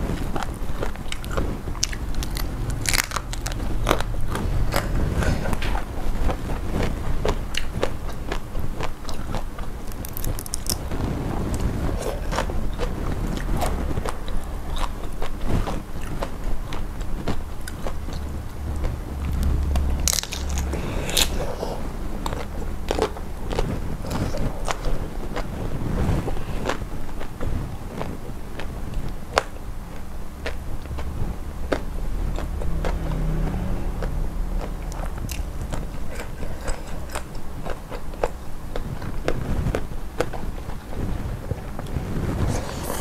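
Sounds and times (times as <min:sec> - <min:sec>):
crunching and chewing: 0:00.0 - 0:43.0.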